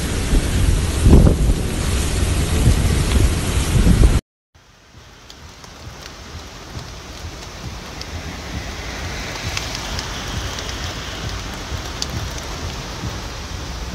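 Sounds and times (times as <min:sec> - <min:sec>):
car rumbling on wet road: 0:00.0 - 0:13.9
rain hissing on car: 0:00.0 - 0:13.9
raindrops ticking on car body: 0:04.6 - 0:13.9.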